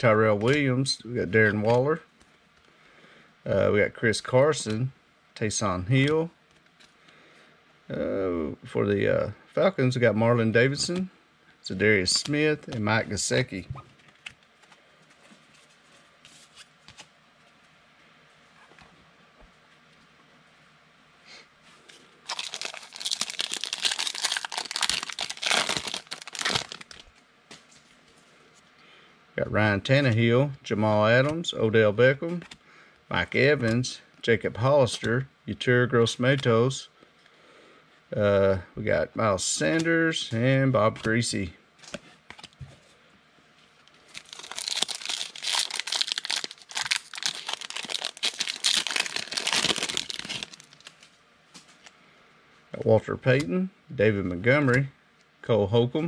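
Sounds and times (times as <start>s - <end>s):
foil wrapper tearing and crinkling: 22.3s - 27.1s, 44.1s - 51.0s.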